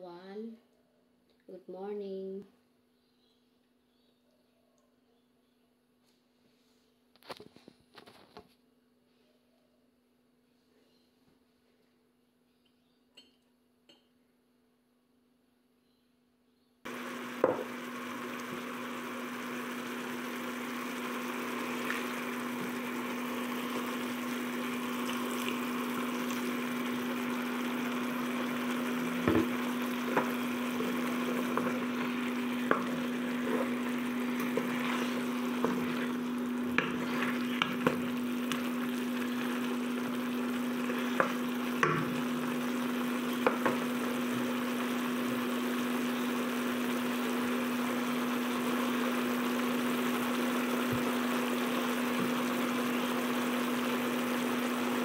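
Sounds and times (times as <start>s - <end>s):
food sizzling in a wok: 16.9s - 55.0s.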